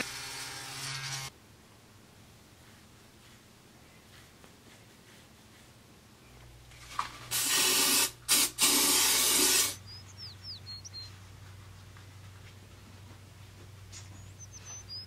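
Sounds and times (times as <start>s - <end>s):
aerosol spray can hissing: 7.3s - 9.8s
faint high chirps: 9.8s - 11.2s, 14.0s - 15.0s.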